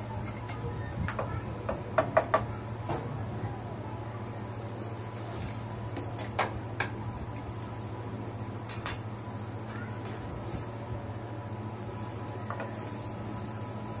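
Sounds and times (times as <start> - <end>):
metal skewers clinking: 8.7 - 9.2.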